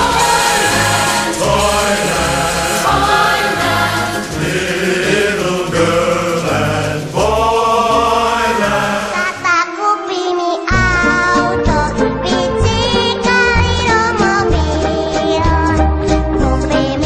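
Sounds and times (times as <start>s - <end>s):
choir-like singing over a beat: 0.0s - 10.4s.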